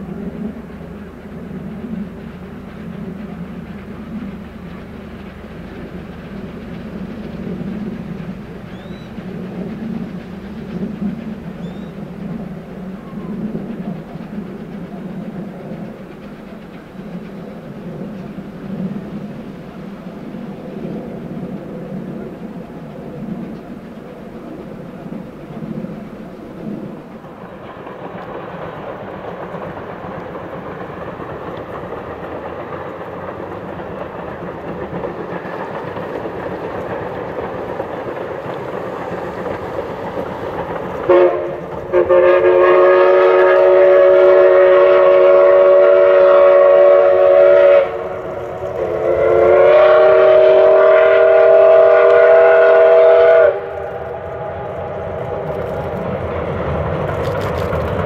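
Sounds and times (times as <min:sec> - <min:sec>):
steam locomotives running: 0:00.0 - 0:58.0
steam whistle blasts: 0:41.1 - 0:48.2, 0:48.8 - 0:54.6.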